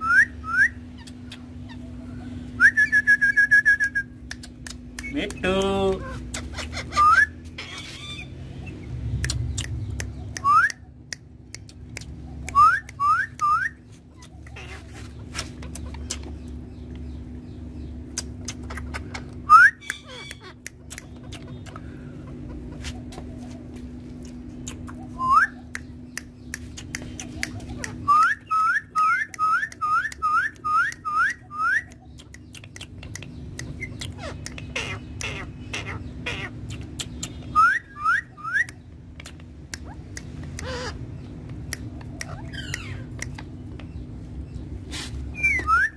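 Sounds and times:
sharp clicks: 0:04.2 - 0:06.6, 0:09.2 - 0:13.6, 0:25.7 - 0:28.4
parakeets whistled calls: 0:06.0 - 0:10.9, 0:18.6 - 0:21.6, 0:24.8 - 0:25.9, 0:27.0 - 0:32.7, 0:33.3 - 0:38.8, 0:39.8 - 0:41.4, 0:42.0 - 0:44.0, 0:45.0 - 0:45.9.

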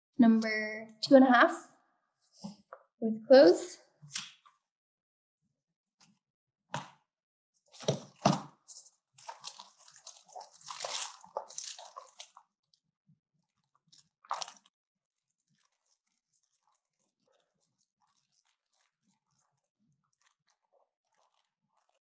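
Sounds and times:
paper rustling and crinkling: 0:07.7 - 0:12.5.

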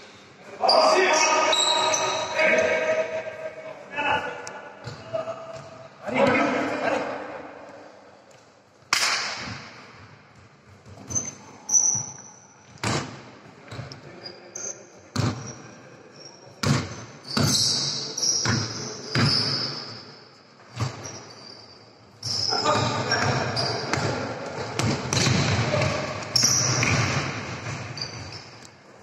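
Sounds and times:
shoes squeaking on floor: 0:00.6 - 0:02.7, 0:10.7 - 0:12.8, 0:13.7 - 0:20.1, 0:20.7 - 0:29.0
basketball bouncing indoors: 0:15.1 - 0:15.5, 0:16.6 - 0:19.7, 0:22.2 - 0:28.6.

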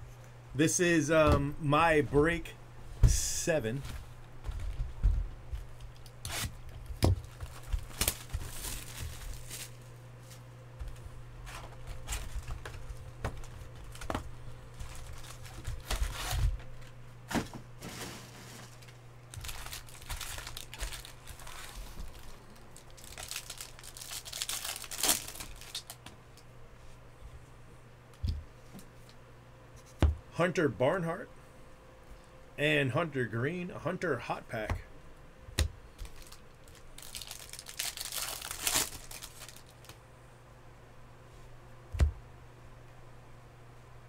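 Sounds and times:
low steady hum: 0:00.0 - 0:44.0
wrapper crinkling and tearing: 0:06.3 - 0:09.9, 0:14.7 - 0:16.5, 0:17.9 - 0:26.0, 0:36.0 - 0:40.0.

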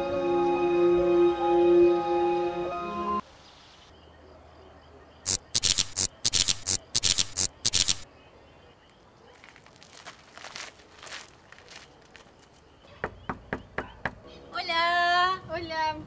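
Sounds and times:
insect chirping: 0:03.2 - 0:13.7.

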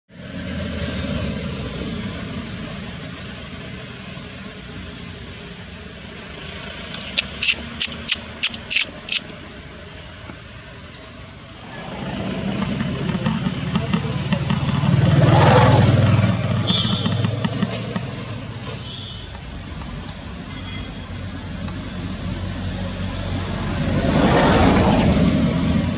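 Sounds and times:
vehicle passing: 0:00.1 - 0:09.8, 0:10.8 - 0:25.9
sharp clicks: 0:06.9 - 0:09.4.

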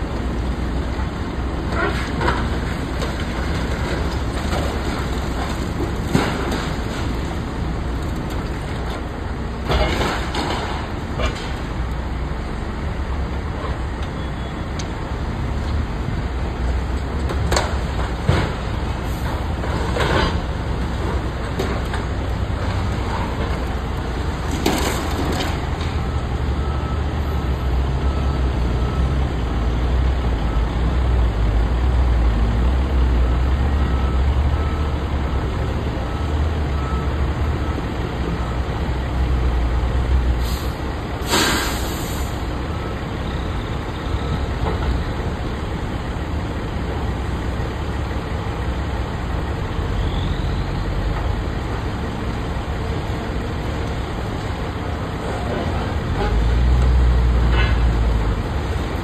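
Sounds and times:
diesel engine rumbling: 0:00.0 - 0:59.0
building cracking and crunching: 0:02.0 - 0:09.0.

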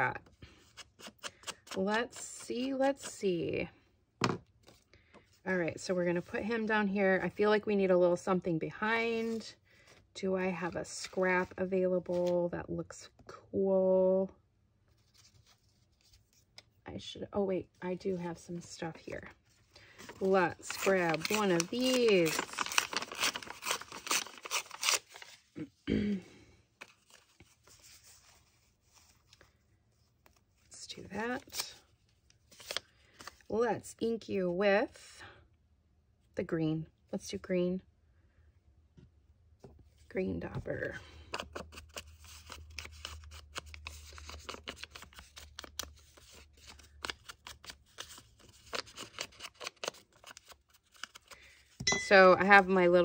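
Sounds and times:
paper ripping: 0:20.1 - 0:25.6, 0:32.5 - 0:33.3, 0:41.5 - 0:51.3.

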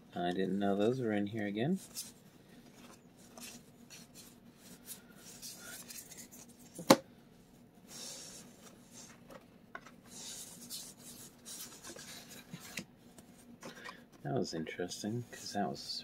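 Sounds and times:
cards rustling and sliding: 0:01.8 - 0:07.0, 0:07.9 - 0:14.0.

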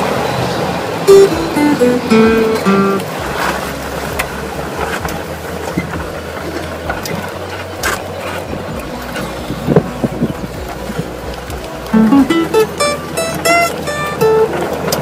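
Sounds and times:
golf cart rumbling: 0:00.0 - 0:15.0
wind on microphone: 0:08.5 - 0:11.2.

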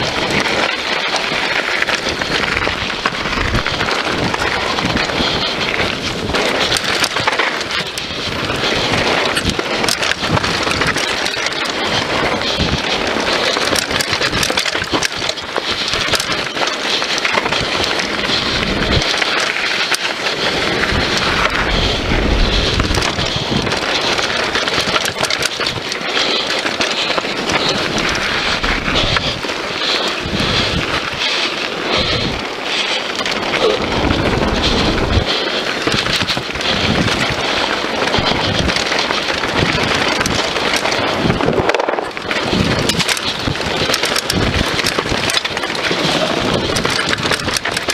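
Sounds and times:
bike rattling over bumps: 0:00.0 - 0:47.9
tyres on loose dirt and stones: 0:00.0 - 0:47.9
wind buffeting microphone: 0:00.0 - 0:47.9.

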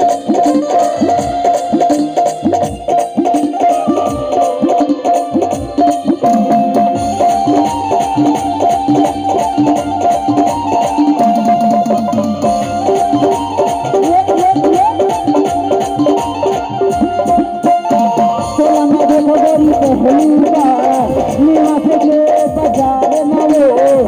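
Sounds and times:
hand drum playing: 0:00.0 - 0:24.0
keyboard melody: 0:00.0 - 0:24.0.

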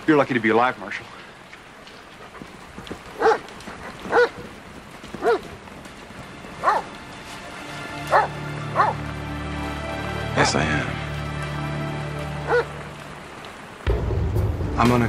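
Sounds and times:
dog barking: 0:03.1 - 0:04.5, 0:05.2 - 0:05.6, 0:06.6 - 0:06.9, 0:08.1 - 0:09.0, 0:12.4 - 0:12.8.

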